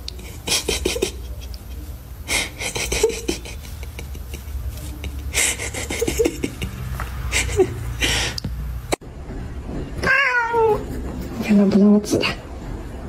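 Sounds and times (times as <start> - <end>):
breathy hiss-like noise bursts: 1.8 - 5.9
cat meowing: 10.0 - 10.9.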